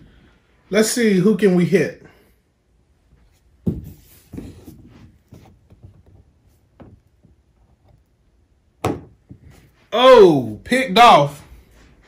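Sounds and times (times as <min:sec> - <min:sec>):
soft rubbing: 0:02.9 - 0:08.0.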